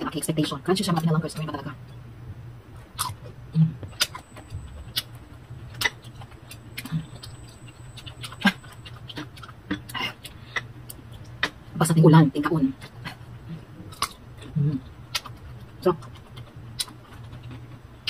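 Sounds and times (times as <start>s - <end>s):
low steady hum: 0.0s - 18.0s
chewing crisp mango: 2.8s - 11.7s, 12.7s - 18.0s.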